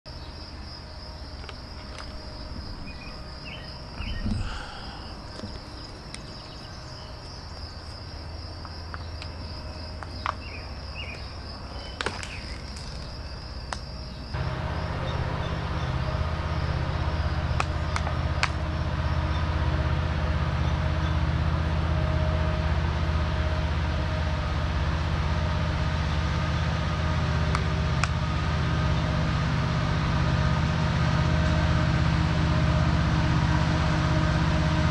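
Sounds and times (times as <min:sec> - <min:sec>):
insects trilling: 0:00.1 - 0:21.4
diesel locomotives rumbling: 0:00.1 - 0:34.9.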